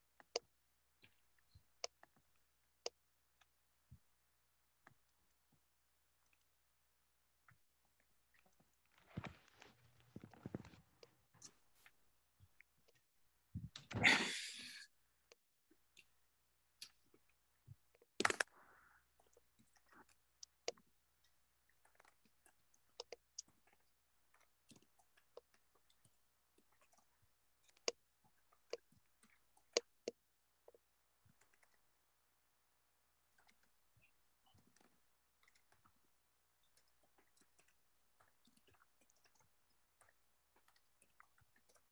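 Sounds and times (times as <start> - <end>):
mouse and keyboard clicks: 18.1 - 18.5.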